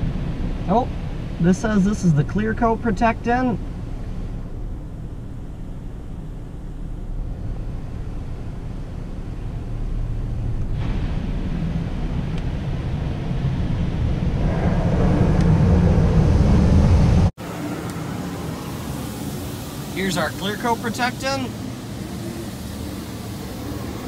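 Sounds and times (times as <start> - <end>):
car wash low rumble: 0.0 - 24.0
water spray hissing on windshield: 17.4 - 24.0.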